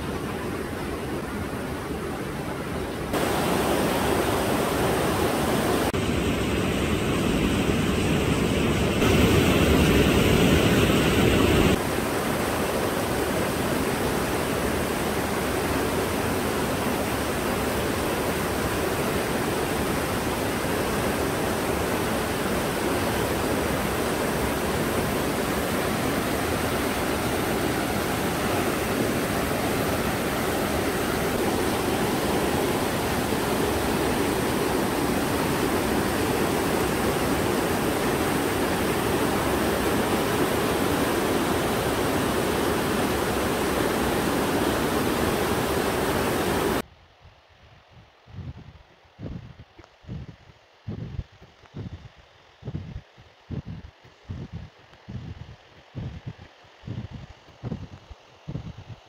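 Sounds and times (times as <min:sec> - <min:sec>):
stream rushing over rocks: 0:00.0 - 0:06.0, 0:09.0 - 0:46.8.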